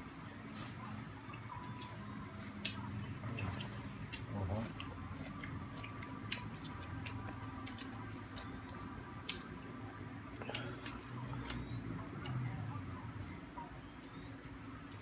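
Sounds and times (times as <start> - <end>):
steady low hum: 0.0 - 15.0
eating clicks and wet smacks: 0.8 - 12.6.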